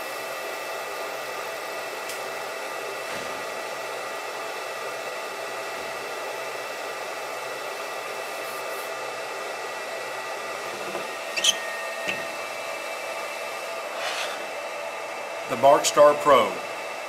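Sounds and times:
cooling fan whirring: 0:00.0 - 0:17.0
thin whining tones: 0:11.3 - 0:12.4.

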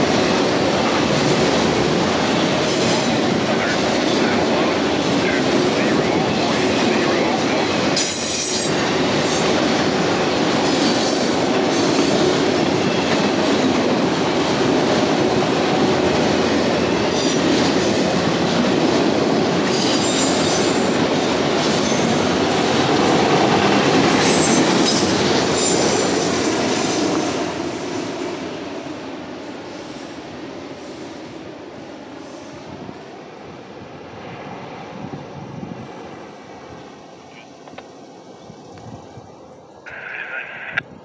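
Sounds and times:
freight train rolling past: 0:00.0 - 0:40.0
train wheels squealing: 0:08.0 - 0:09.6, 0:10.6 - 0:13.6, 0:19.6 - 0:22.5, 0:24.1 - 0:28.4, 0:29.2 - 0:32.8.

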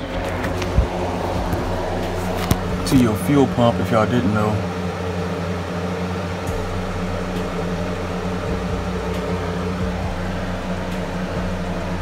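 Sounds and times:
mechanical hum with low drone: 0:00.0 - 0:12.0.

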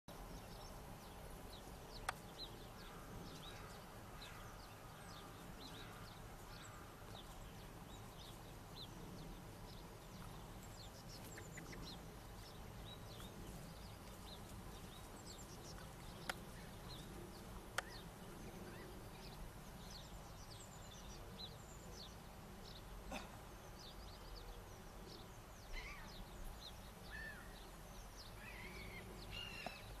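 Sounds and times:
birds chirping: 0:00.1 - 0:30.0
sharp clicks: 0:16.2 - 0:16.4.

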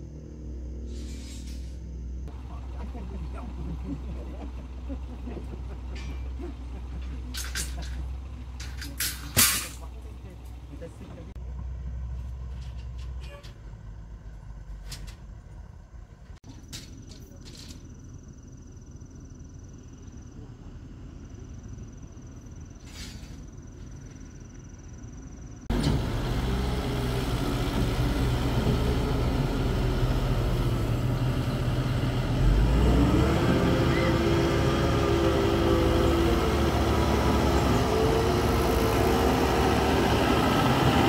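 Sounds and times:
excavator diesel engine running: 0:02.2 - 0:16.4, 0:25.6 - 0:41.0.

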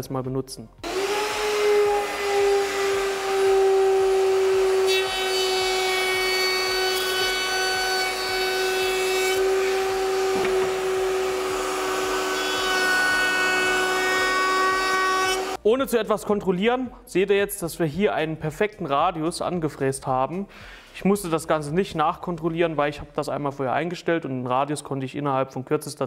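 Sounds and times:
router bit cutting wood: 0:00.8 - 0:15.6
router motor high whine: 0:00.8 - 0:15.6.

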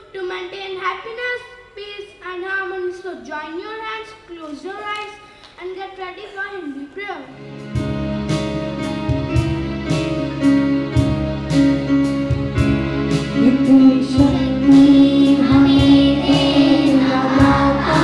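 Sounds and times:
steady beat: 0:07.6 - 0:18.0
prayer song with held chords: 0:13.3 - 0:18.0
people singing: 0:13.6 - 0:18.0.

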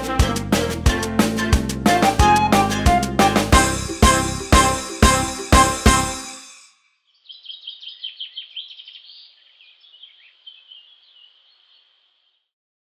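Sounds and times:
credits music: 0:00.0 - 0:06.7
songbird chirping and twittering: 0:03.6 - 0:12.5.

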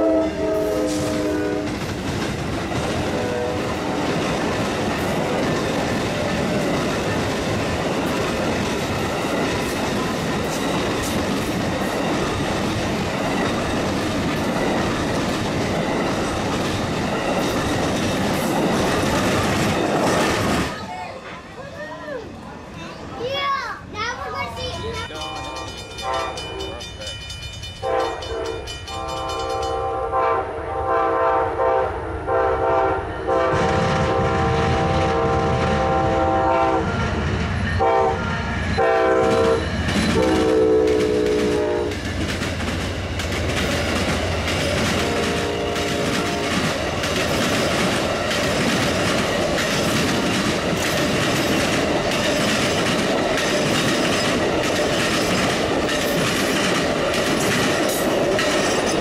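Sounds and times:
train air horn blasts: 0:00.0 - 0:01.9, 0:03.1 - 0:04.0, 0:27.8 - 0:42.0, 0:45.0 - 0:46.5
train wheels rumbling: 0:00.0 - 0:59.0
clickety-clack over rail joints: 0:00.9 - 0:21.5, 0:38.6 - 0:59.0.

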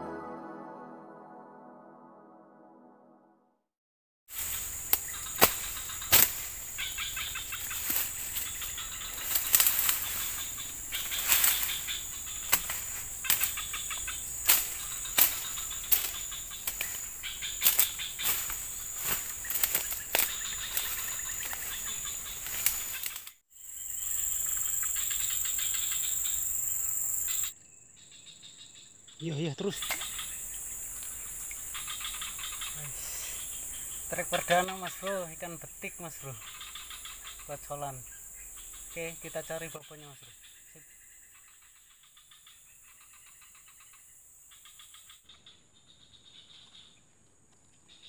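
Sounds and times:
footsteps through undergrowth: 0:04.3 - 0:23.4
leaves rustling: 0:04.3 - 0:23.4
insects droning: 0:04.3 - 0:48.0
twigs snapping: 0:04.4 - 0:23.4.

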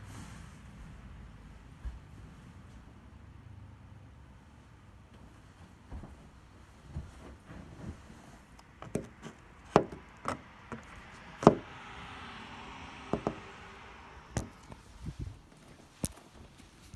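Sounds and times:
car passing: 0:08.6 - 0:15.6
sharp knocks and taps: 0:08.8 - 0:11.7, 0:13.1 - 0:13.4.

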